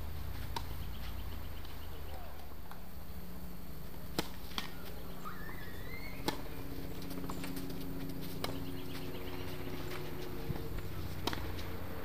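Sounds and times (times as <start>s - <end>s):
tennis ball pocks: 0.4s - 0.8s, 4.1s - 5.0s, 6.2s - 8.7s, 10.5s - 11.8s.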